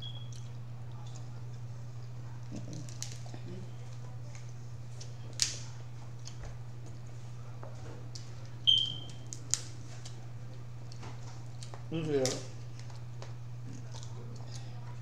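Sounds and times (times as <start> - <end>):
shell cracking: 2.6 - 3.3, 5.0 - 6.4, 8.9 - 10.2.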